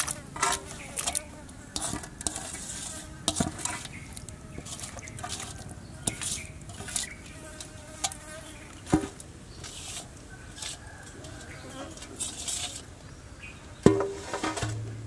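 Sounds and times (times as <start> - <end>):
insects buzzing: 0.0 - 9.7.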